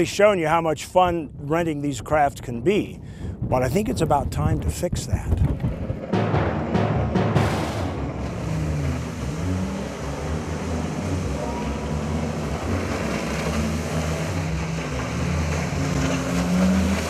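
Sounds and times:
personal watercraft engine: 0:07.9 - 0:17.0.

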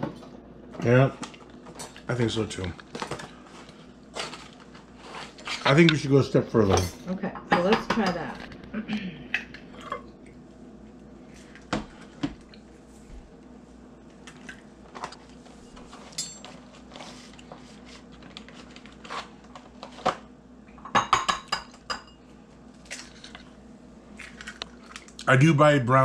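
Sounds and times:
faint steady hum: 0:00.0 - 0:26.0
dishes and utensils clinking: 0:06.6 - 0:08.4, 0:15.9 - 0:16.6, 0:20.8 - 0:22.2.

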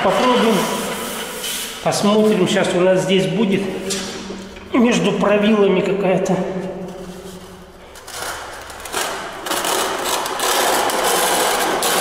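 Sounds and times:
metal rule scraping wet adhesive: 0:00.0 - 0:02.5, 0:07.2 - 0:12.0.

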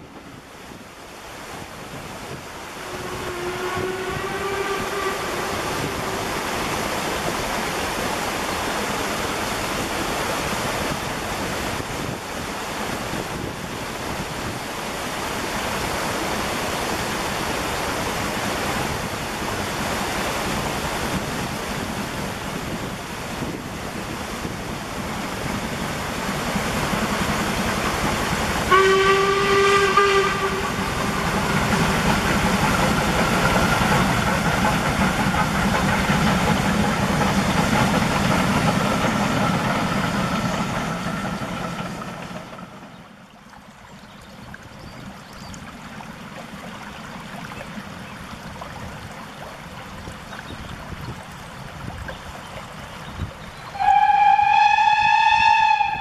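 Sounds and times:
steam locomotive running: 0:01.9 - 0:43.2, 0:53.7 - 0:56.0
steam whistle: 0:02.7 - 0:06.9, 0:28.7 - 0:31.5, 0:53.7 - 0:56.0.

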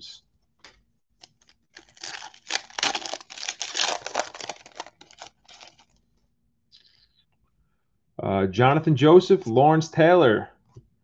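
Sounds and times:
wrapper tearing and crinkling: 0:01.2 - 0:05.9.

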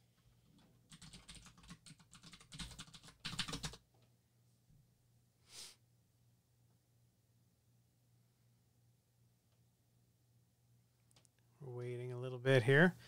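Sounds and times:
keyboard typing: 0:00.5 - 0:03.8.

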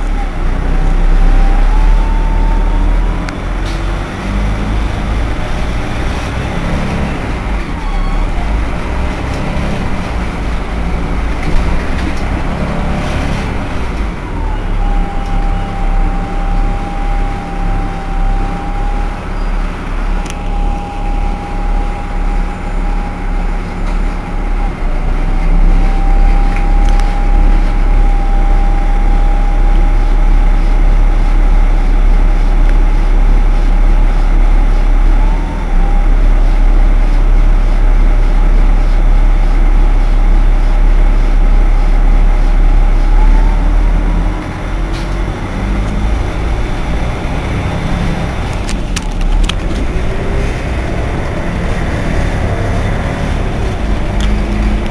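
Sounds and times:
bus engine idling: 0:00.0 - 0:54.9
steady high whine: 0:00.0 - 0:54.9.

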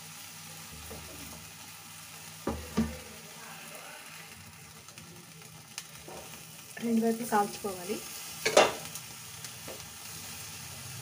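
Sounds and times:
chicken sizzling on a grill: 0:00.0 - 0:11.0.

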